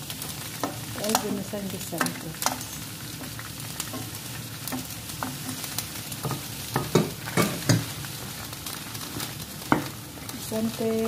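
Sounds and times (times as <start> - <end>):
peas sizzling in a skillet: 0.0 - 11.0
wooden spoon knocking pan: 3.2 - 7.9.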